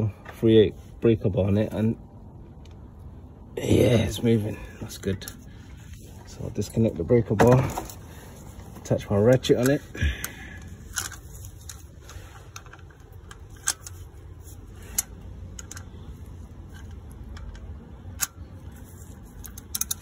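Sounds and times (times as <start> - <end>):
low steady hum: 0.0 - 20.0
ratchet clicking: 16.7 - 20.0.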